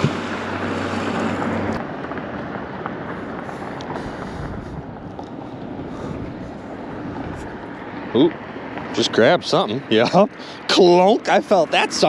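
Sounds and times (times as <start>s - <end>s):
wind noise on microphone: 0.0s - 7.8s
engine humming: 0.0s - 12.0s.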